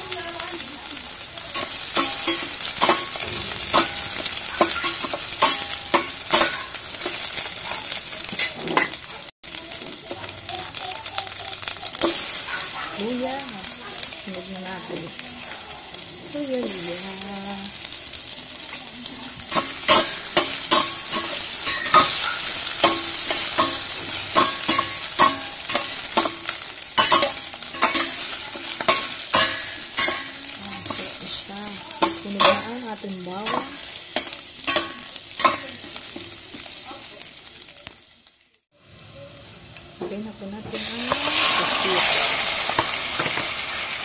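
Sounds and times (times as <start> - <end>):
food sizzling in hot oil: 0.0 - 44.0
metal utensil scraping a pot: 19.5 - 31.4.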